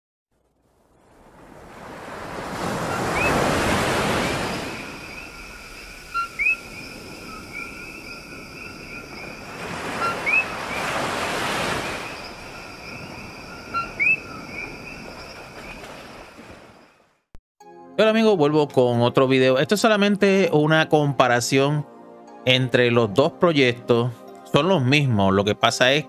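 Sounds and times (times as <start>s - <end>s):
surf washing in: 0.7s - 16.8s.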